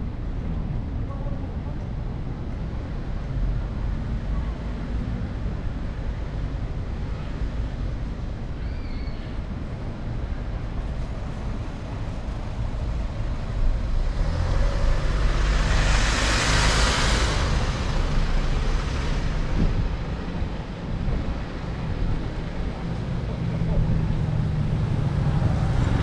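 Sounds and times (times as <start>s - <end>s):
street traffic rumble: 0.0s - 26.0s
vehicle passing close: 12.8s - 22.0s.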